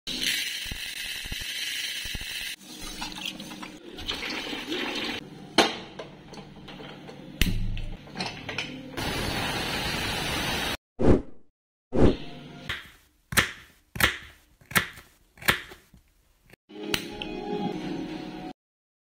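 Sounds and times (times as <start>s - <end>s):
water pouring: 0.1s - 5.2s.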